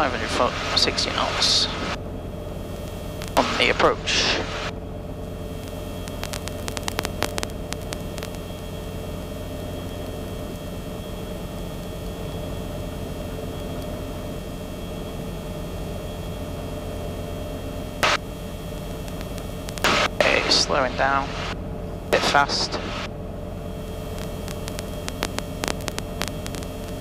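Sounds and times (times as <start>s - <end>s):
helicopter engine and rotors: 0.0s - 27.0s
constant hiss: 2.6s - 10.9s, 18.0s - 23.1s
short clicks and crackles: 5.6s - 8.5s, 19.0s - 20.1s, 24.2s - 27.0s.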